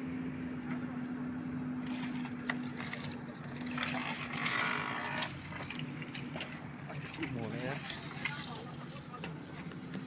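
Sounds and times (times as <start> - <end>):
diesel engine humming: 0.0 - 10.0
bamboo walls cracking and snapping: 1.8 - 8.5.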